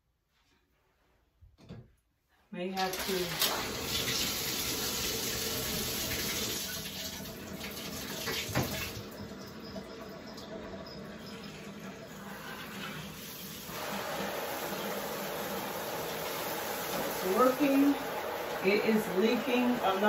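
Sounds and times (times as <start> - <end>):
shower spraying into tub: 2.8 - 9.0, 12.2 - 20.0.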